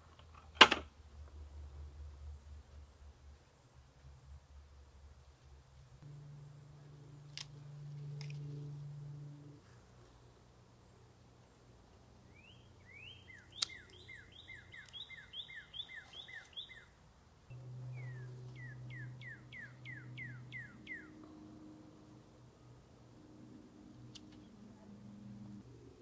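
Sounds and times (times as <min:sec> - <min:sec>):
low steady hum: 0:00.0 - 0:26.0
songbird singing: 0:06.0 - 0:25.7
sharp click: 0:13.3 - 0:14.0.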